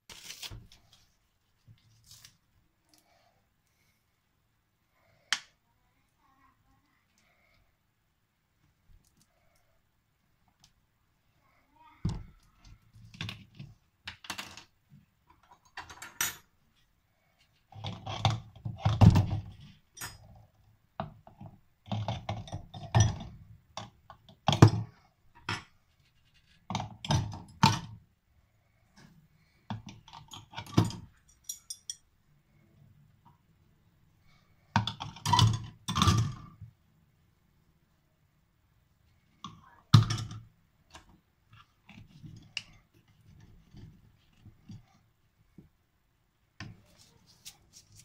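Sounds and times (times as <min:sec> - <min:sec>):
clatter of objects in steel sink: 0:15.3 - 0:16.5, 0:34.8 - 0:36.5.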